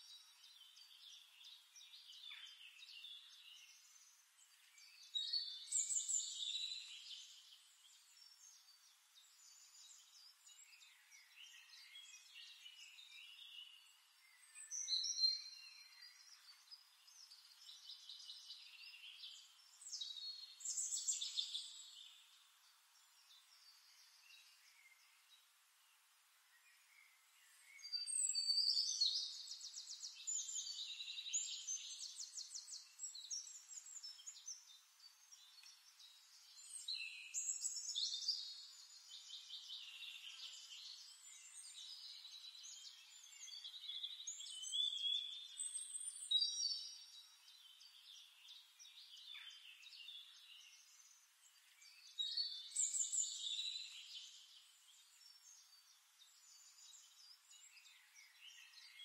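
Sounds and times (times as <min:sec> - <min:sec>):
songbird trills and chirps: 0:00.0 - 0:59.0.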